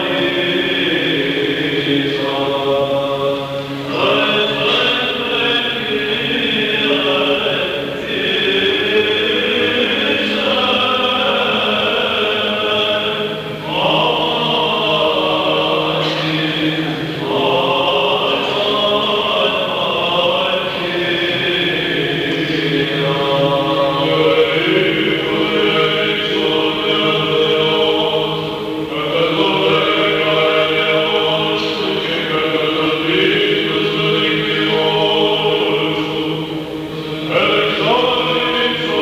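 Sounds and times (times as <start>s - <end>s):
low held vocal drone: 0.0s - 39.0s
men singing chant: 0.0s - 39.0s.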